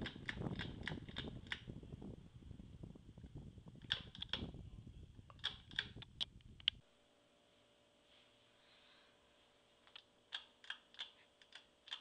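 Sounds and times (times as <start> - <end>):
sharp clicks and ticks: 0.0 - 1.7, 3.8 - 4.5, 5.3 - 6.8, 9.9 - 12.0
low uneven rumble: 0.0 - 6.8
ceiling fan running: 0.0 - 12.0.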